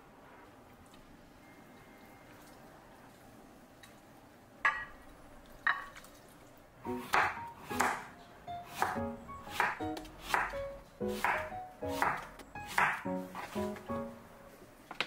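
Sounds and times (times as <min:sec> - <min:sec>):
light background music: 0:06.8 - 0:14.8
knife strokes on cutting board: 0:11.1 - 0:13.8.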